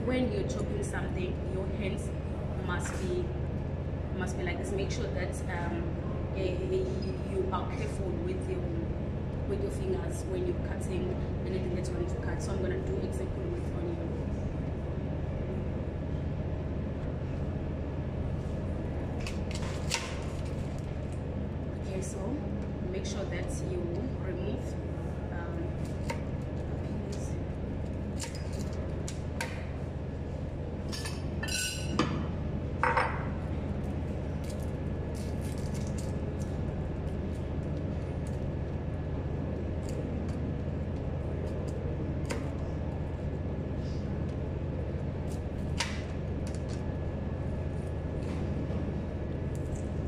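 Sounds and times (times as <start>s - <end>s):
steady low hum: 0.0s - 50.0s
clinks in ceramic bowl: 30.9s - 32.1s.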